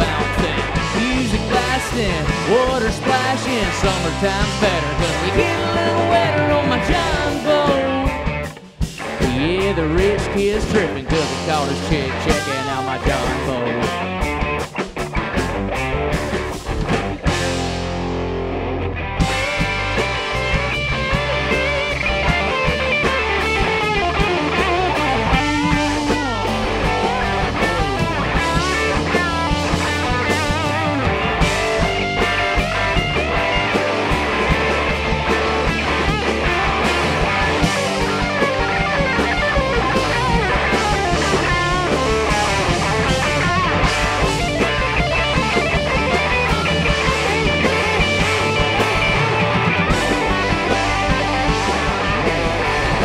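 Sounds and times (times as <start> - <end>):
bass guitar: 0.0 - 53.0
drum kit: 0.0 - 53.0
electric guitars: 0.0 - 53.0.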